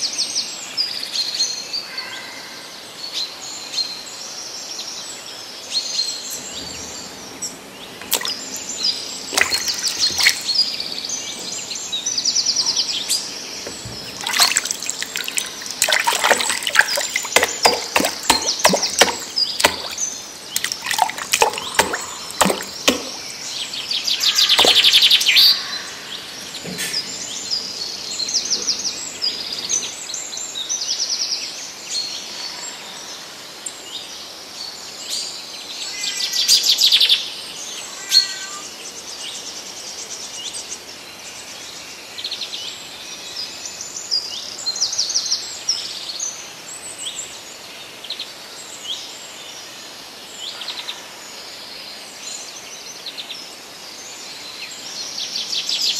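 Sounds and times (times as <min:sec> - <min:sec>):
birds chirping and trilling: 0:00.0 - 0:40.8
hand splashing in muddy water: 0:08.0 - 0:08.6, 0:09.3 - 0:10.8, 0:14.0 - 0:23.4, 0:24.5 - 0:25.2.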